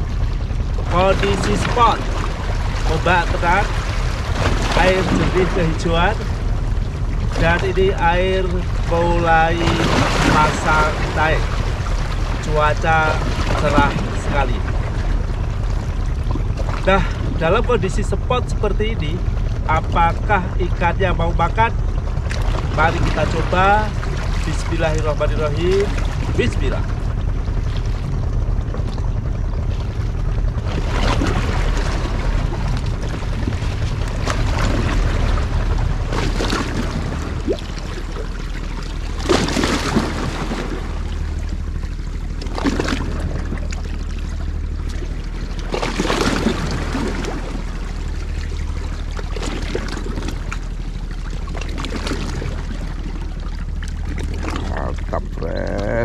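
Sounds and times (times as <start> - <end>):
steady low rumble: 0.0 - 56.0
waves splashing against rocks: 0.9 - 6.4, 7.2 - 15.2, 30.7 - 41.8, 42.4 - 50.8.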